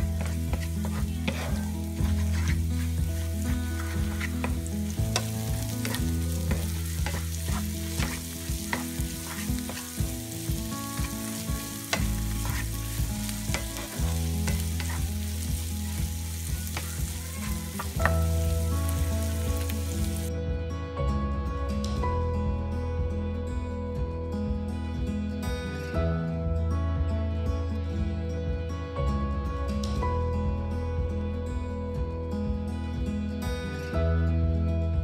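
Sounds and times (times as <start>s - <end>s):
food sizzling in a frying pan: 0.0s - 20.3s
wooden spatula scraping a pan: 0.0s - 20.3s.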